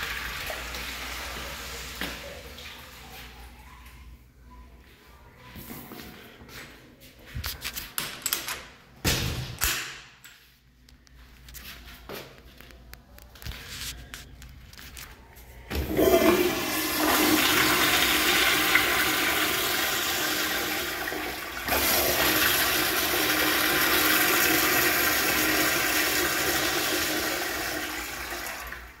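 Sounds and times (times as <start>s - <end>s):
toilet flushing water rush: 0.0s - 3.2s, 15.7s - 29.0s.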